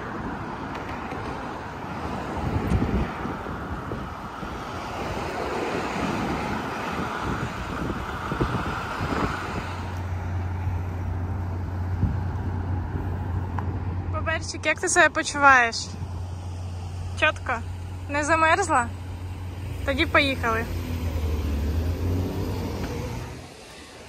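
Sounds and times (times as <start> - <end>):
car traffic passing: 0.0 - 24.0
wind buffeting microphone: 0.1 - 14.2.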